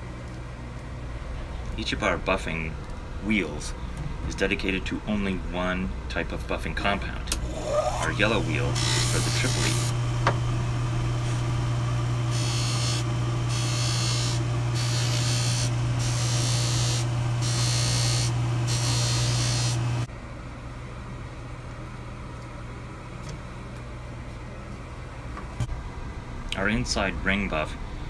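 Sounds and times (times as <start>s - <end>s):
electric motor humming: 7.3s - 20.1s.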